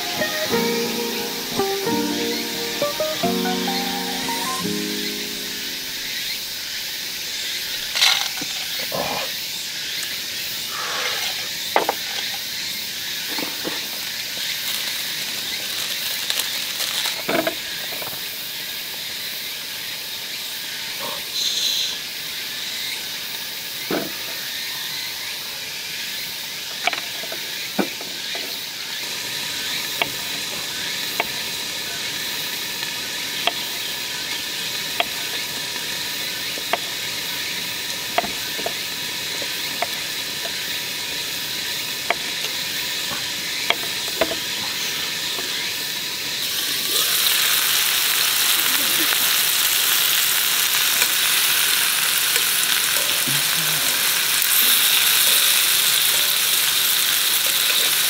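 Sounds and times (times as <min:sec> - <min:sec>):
meat sizzling in a pan: 0:13.1 - 0:18.2, 0:27.4 - 0:58.0.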